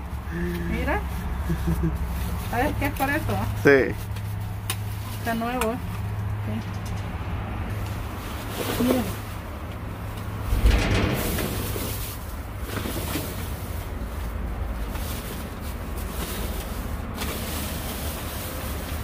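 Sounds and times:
rustling and handling noise: 7.7s - 19.0s
steady low rumble: 9.8s - 13.0s
thump: 10.5s - 12.3s.

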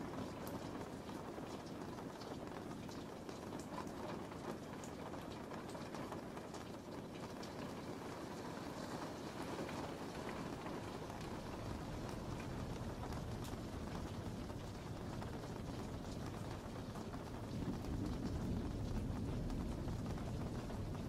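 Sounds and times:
steady rain: 0.0s - 21.0s.

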